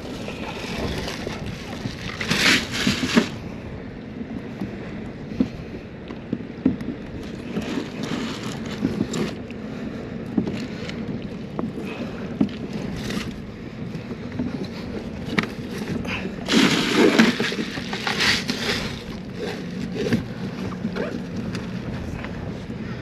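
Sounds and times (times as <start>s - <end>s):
rustling and handling noise: 0.0s - 3.4s, 15.2s - 22.4s
water lapping against kayak hull: 0.0s - 23.0s.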